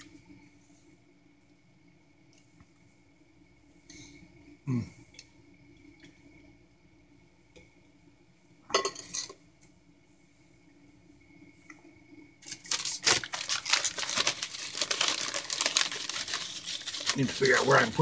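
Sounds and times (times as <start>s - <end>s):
dishware clattering: 8.8s - 9.4s
plastic wrapper crinkling: 12.4s - 18.0s.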